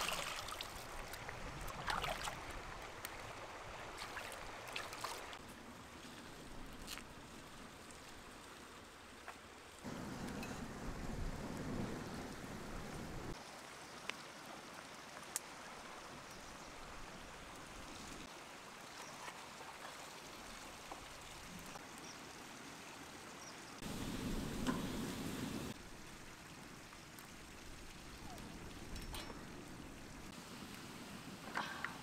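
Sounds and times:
fire crackling: 0:09.8 - 0:13.7, 0:23.8 - 0:32.0
wood fire hissing: 0:09.8 - 0:13.7, 0:23.8 - 0:28.7, 0:29.7 - 0:32.0.

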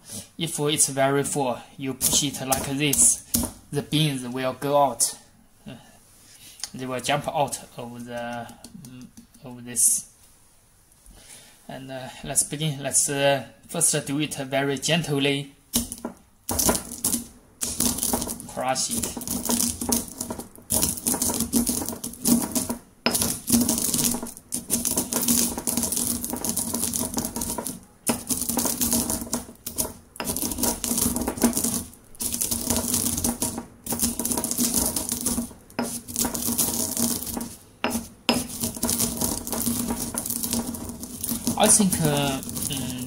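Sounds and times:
pestle crushing coffee beans: 0:02.0 - 0:03.8, 0:08.1 - 0:09.4, 0:15.7 - 0:43.0.

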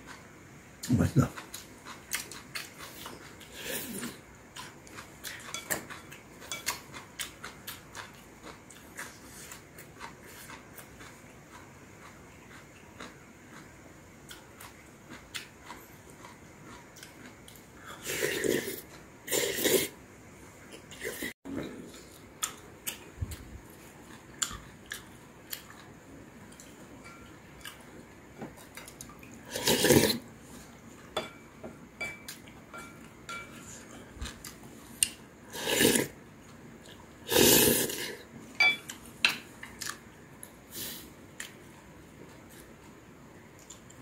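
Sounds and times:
person slurping soup: 0:18.0 - 0:20.0, 0:29.5 - 0:30.2, 0:35.5 - 0:36.2, 0:37.3 - 0:38.2
chopsticks tapping ceramic bowls: 0:31.2 - 0:33.6.

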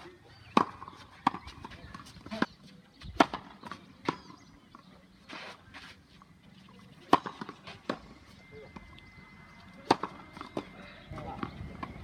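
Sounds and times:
tennis balls struck by rackets: 0:00.0 - 0:02.5, 0:03.1 - 0:04.9, 0:07.0 - 0:08.1, 0:09.8 - 0:12.0
balls bouncing on clay court: 0:00.0 - 0:04.9, 0:09.8 - 0:12.0.

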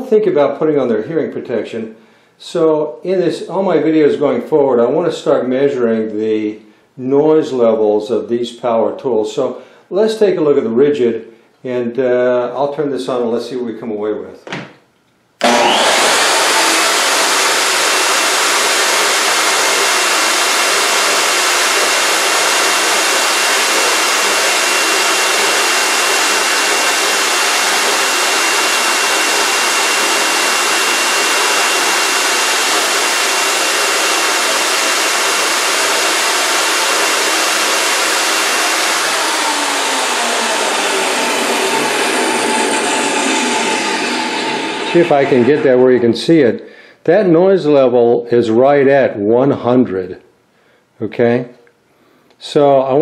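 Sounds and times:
table saw running: 0:15.4 - 0:46.0.

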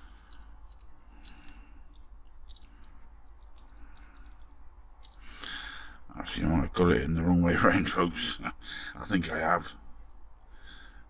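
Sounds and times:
small metal parts clicking: 0:00.0 - 0:05.8.

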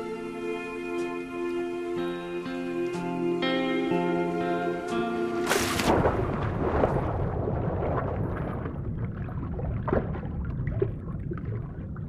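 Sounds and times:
muffled underwater rushing: 0:05.4 - 0:12.0
bubbling crackles: 0:05.5 - 0:12.0.

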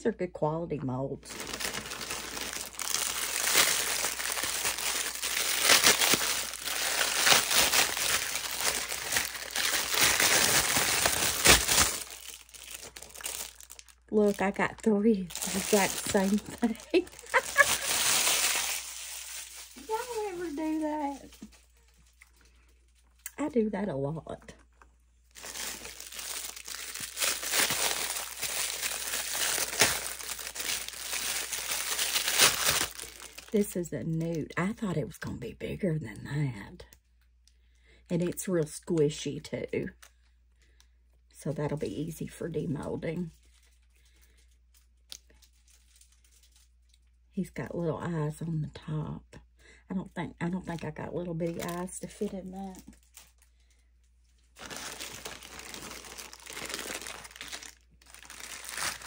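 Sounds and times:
plastic packaging crinkling: 0:01.3 - 0:23.3, 0:24.6 - 0:34.3, 0:43.2 - 0:47.3, 0:50.7 - 0:59.0.

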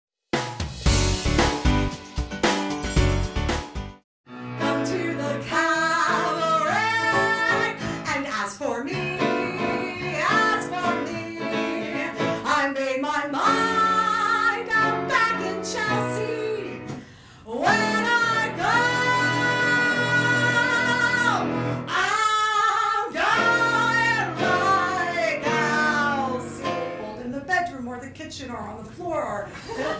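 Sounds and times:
instrumental accompaniment: 0:00.4 - 0:08.0, 0:23.2 - 0:27.3
woman singing into microphone: 0:04.6 - 0:27.3.

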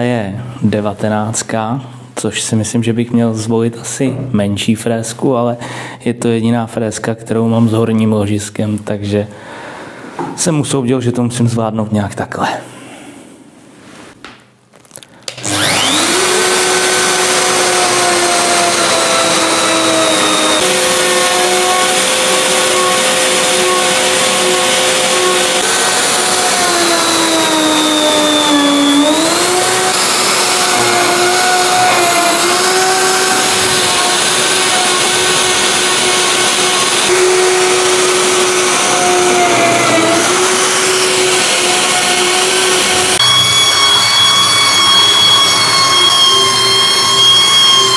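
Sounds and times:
belt sander running: 0:15.3 - 0:47.9
router high-pitched whine: 0:15.3 - 0:47.9.

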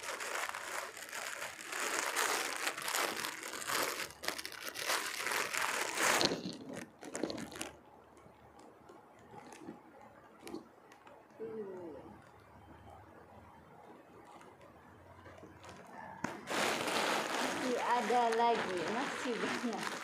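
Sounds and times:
plastic bag crinkling: 0:00.0 - 0:11.2, 0:15.3 - 0:20.0.

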